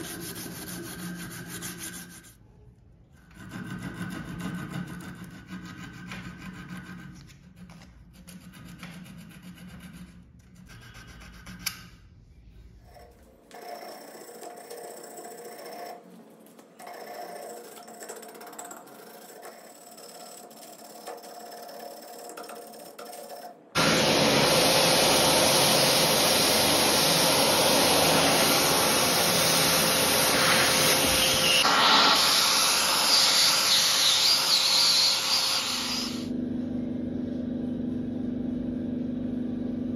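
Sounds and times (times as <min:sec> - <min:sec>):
vacuum cleaner running: 0:23.8 - 0:39.9.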